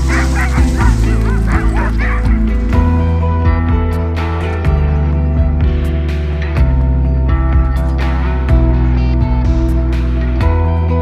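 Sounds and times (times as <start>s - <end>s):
huskies yelping: 0.0s - 3.0s
background music: 0.0s - 11.0s.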